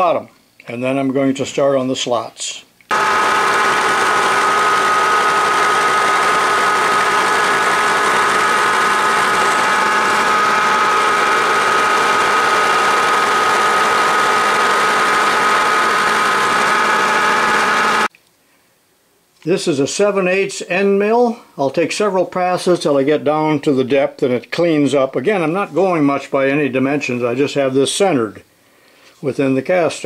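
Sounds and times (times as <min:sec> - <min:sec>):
milling machine whining: 0:02.9 - 0:18.1.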